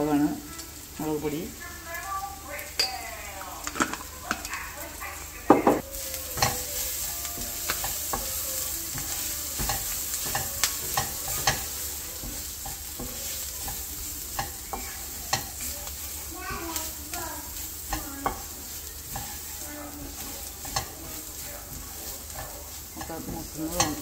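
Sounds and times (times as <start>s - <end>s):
onions sizzling in oil: 0.0s - 24.0s
wooden spatula scraping a pan: 5.8s - 24.0s.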